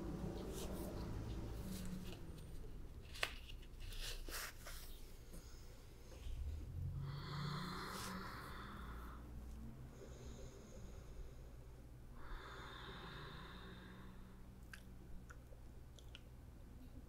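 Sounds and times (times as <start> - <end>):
person breathing softly: 3.9 - 14.6.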